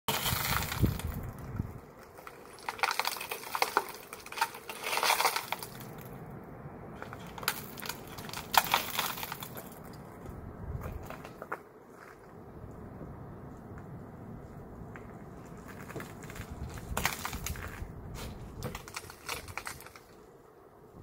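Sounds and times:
broken glass crunching and clinking: 0:00.1 - 0:01.2, 0:02.1 - 0:06.1, 0:07.0 - 0:10.0, 0:18.6 - 0:20.2.

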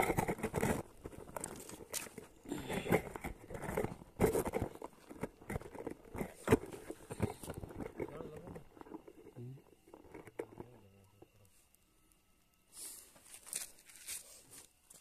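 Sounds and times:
dry sticks crunching and cracking: 0:00.1 - 0:05.9, 0:13.3 - 0:14.2.

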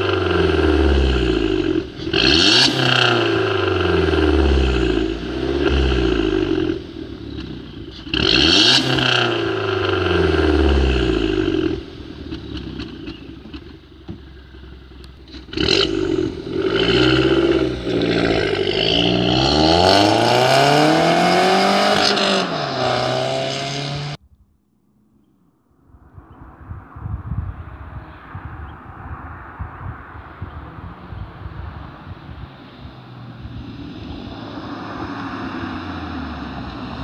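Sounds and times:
car engine revving: 0:00.0 - 0:24.2, 0:26.6 - 0:37.0.

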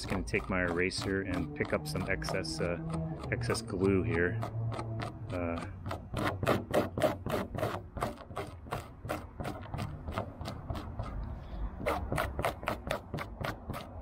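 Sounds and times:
eraser rubbing on fabric: 0:00.0 - 0:02.7, 0:11.8 - 0:14.0.

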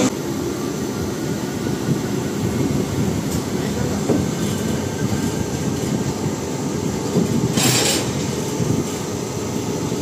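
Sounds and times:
train coaches running on rails: 0:00.0 - 0:10.0.

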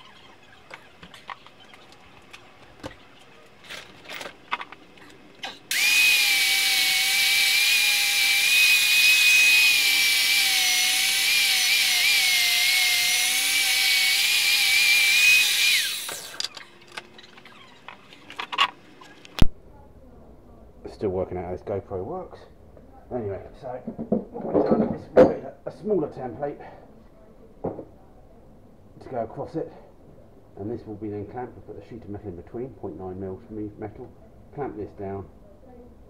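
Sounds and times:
angle grinder whining: 0:05.5 - 0:19.4.

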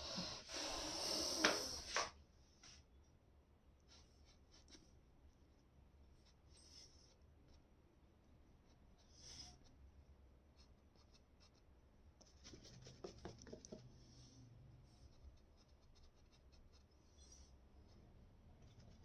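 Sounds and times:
low room hum: 0:00.0 - 0:19.0
paintbrush scratching on canvas: 0:03.9 - 0:05.0, 0:10.5 - 0:14.2, 0:14.9 - 0:19.0
scrapes and taps: 0:12.2 - 0:13.9.

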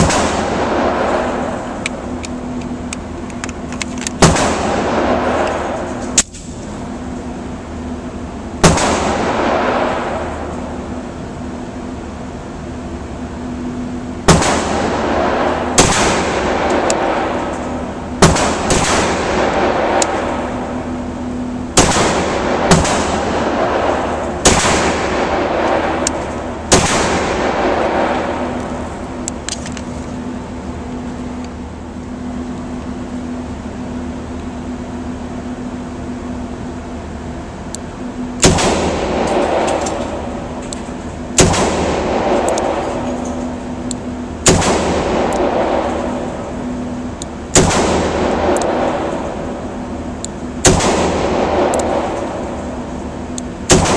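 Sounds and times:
pistol shots echoing: 0:00.0 - 0:01.9, 0:04.2 - 0:05.9, 0:08.6 - 0:10.4, 0:14.2 - 0:20.8, 0:21.7 - 0:28.8, 0:38.4 - 0:40.6, 0:41.3 - 0:43.8, 0:44.4 - 0:46.6, 0:47.5 - 0:49.5, 0:50.6 - 0:52.9, 0:53.6 - 0:53.9.

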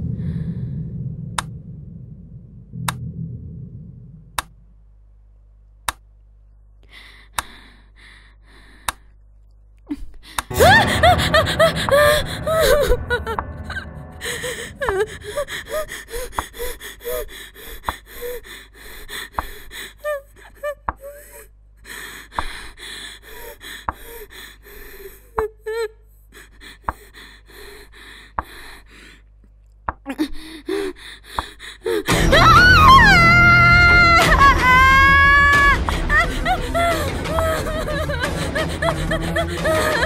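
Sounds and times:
woman gasping: 0:09.9 - 0:29.2, 0:30.1 - 0:32.2
shaky whimpering breaths: 0:14.3 - 0:29.3.

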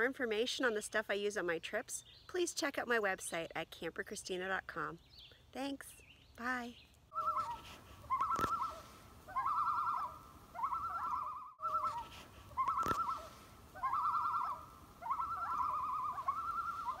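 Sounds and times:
loon tremolo calls: 0:07.1 - 0:17.0.

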